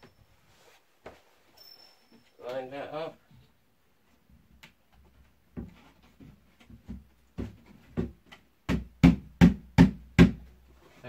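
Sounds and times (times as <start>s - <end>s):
knocks on wooden bed panel: 6.7s - 10.5s.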